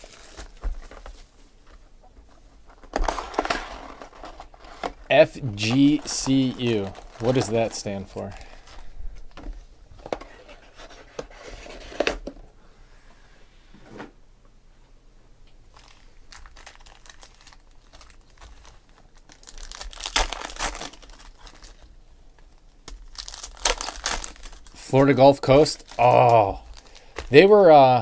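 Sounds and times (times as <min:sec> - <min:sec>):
foil wrappers crinkling and tearing: 0:00.0 - 0:01.3, 0:02.7 - 0:08.9, 0:15.7 - 0:27.7.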